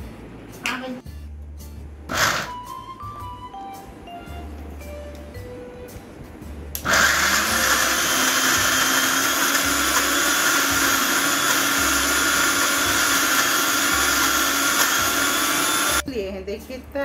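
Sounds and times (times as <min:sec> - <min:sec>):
mixer grinder motor grinding: 0:02.1 - 0:02.6, 0:06.8 - 0:16.0.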